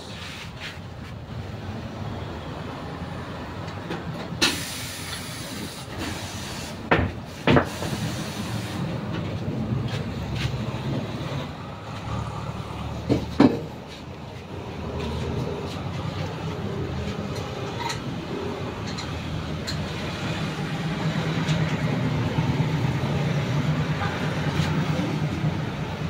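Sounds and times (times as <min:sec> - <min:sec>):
air hiss burst: 0:04.4 - 0:08.9.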